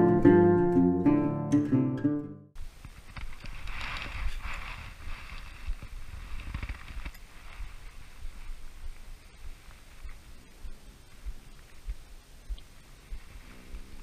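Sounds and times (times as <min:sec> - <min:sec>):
guitar music sting: 0:00.0 - 0:02.5
faint hiss: 0:02.6 - 0:14.0.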